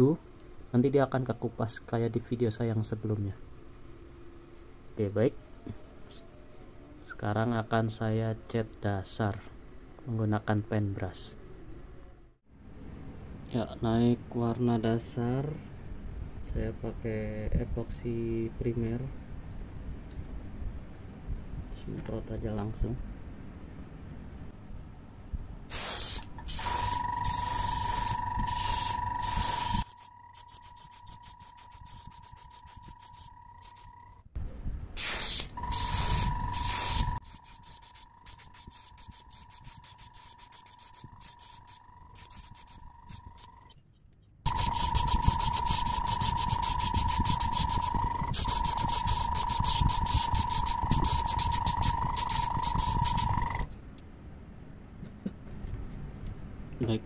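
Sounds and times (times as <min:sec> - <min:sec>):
airbrush air hiss with whine: 0:25.7 - 0:34.0, 0:35.0 - 0:43.6, 0:44.5 - 0:53.7.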